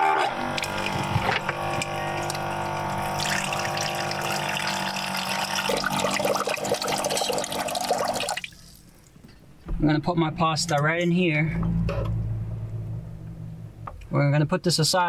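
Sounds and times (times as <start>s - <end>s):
water pouring into metal sink: 3.1s - 8.8s.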